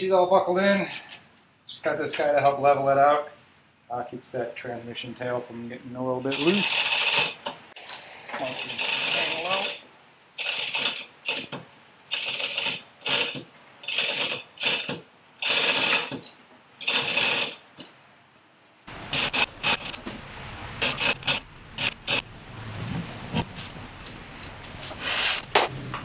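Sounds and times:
ratchet clicking: 6.3s - 7.6s, 8.4s - 9.8s, 10.4s - 17.7s.

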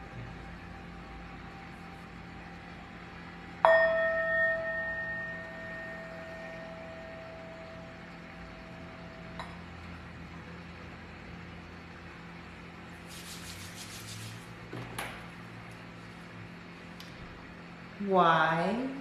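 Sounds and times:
singing bowl ringing: 3.2s - 10.0s.

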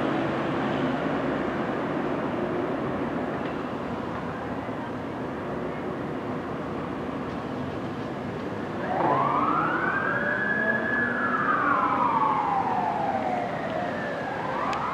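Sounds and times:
fire truck siren wailing: 8.7s - 14.9s.

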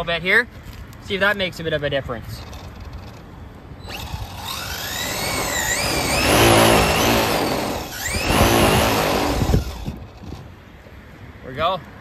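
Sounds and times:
electric motor whining: 3.9s - 10.1s.

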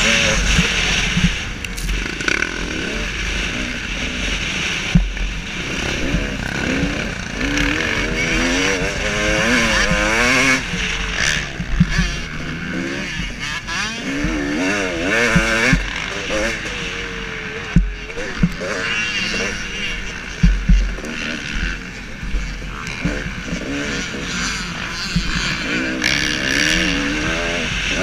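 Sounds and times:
wind rush on microphone: 0.0s - 13.5s
two-stroke motorcycle engine revving: 0.0s - 28.0s.

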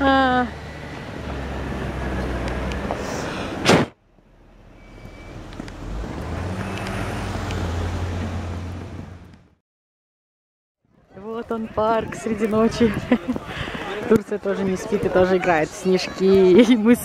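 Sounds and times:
car driving past: 4.3s - 9.5s.

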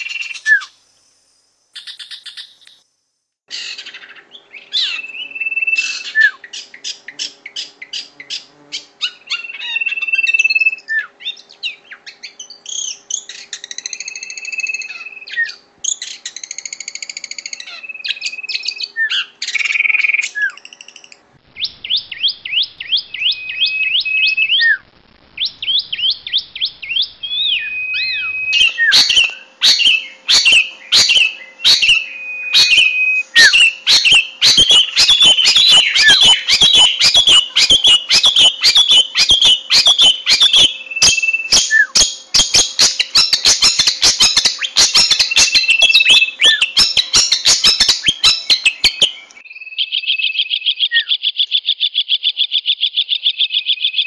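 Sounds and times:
bird singing sharp chattering notes: 25.4s - 51.2s.

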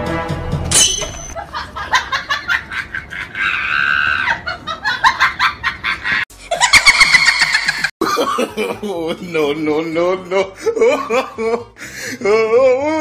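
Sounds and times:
person laughing in bursts: 1.4s - 11.7s
high-pitched scream: 3.4s - 4.4s.

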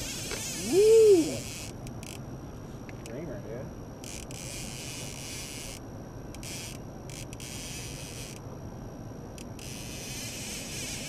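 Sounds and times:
fishing reel drag buzzing: 0.0s - 2.2s, 4.0s - 5.8s, 6.4s - 8.4s, 9.4s - 11.0s.

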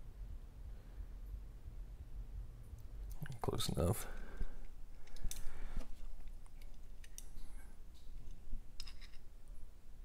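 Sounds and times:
small sharp metal clicks: 4.9s - 5.6s, 6.2s - 7.4s.

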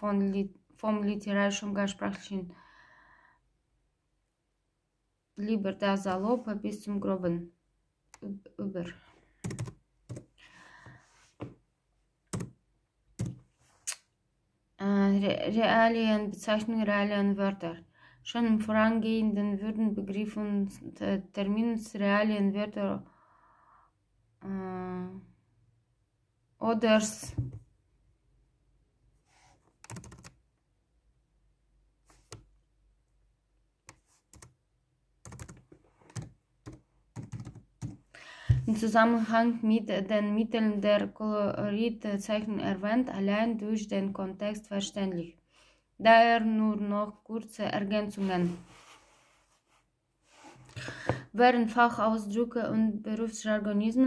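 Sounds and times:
soft taps and knocks: 11.4s - 11.6s, 27.3s - 27.7s.

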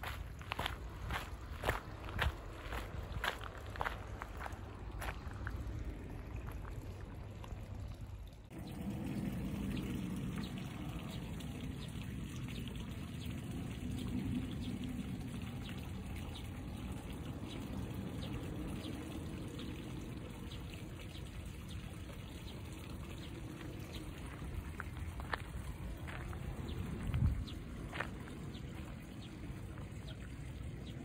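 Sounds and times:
water trickling in channel: 0.0s - 31.0s.

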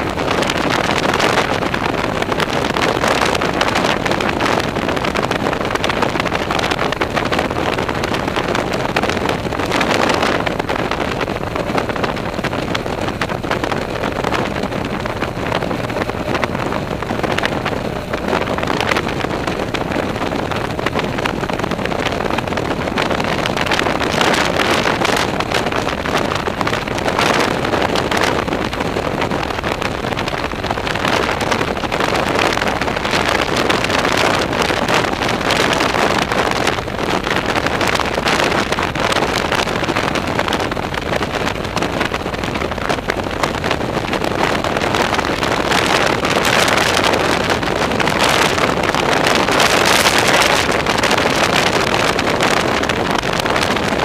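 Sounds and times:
motorcycle running: 0.0s - 54.0s
wind rushing over microphone: 0.0s - 54.0s.

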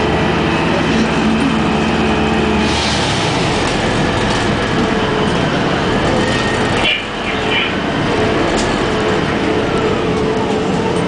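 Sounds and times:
bus engine running: 0.0s - 11.0s
road noise: 0.0s - 11.0s.

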